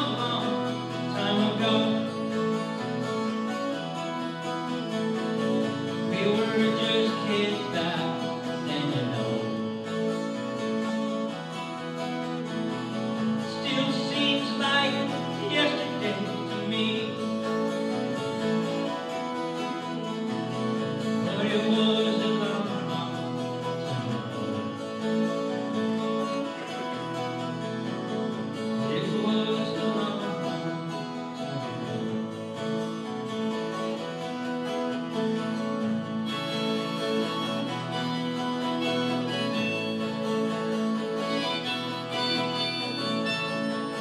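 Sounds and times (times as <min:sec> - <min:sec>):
acoustic guitar chords: 0:00.0 - 0:44.0.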